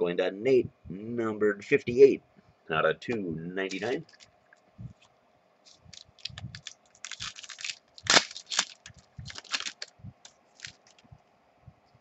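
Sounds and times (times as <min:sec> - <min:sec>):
wrapper crinkling and tearing: 0:05.7 - 0:11.0.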